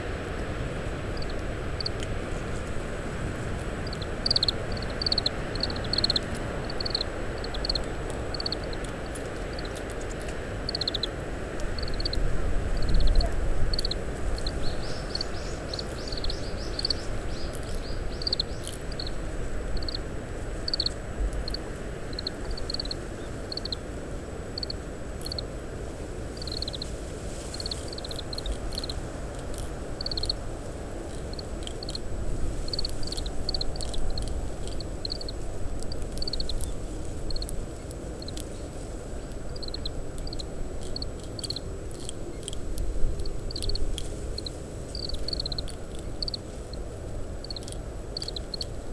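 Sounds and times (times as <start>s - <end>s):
wind rumble on microphone: 0.0s - 48.9s
finch chirping: 3.8s - 8.9s, 10.7s - 11.1s, 12.8s - 19.2s, 20.7s - 21.6s, 22.2s - 23.8s, 26.4s - 26.9s, 30.0s - 30.4s, 45.0s - 46.4s, 47.4s - 48.7s.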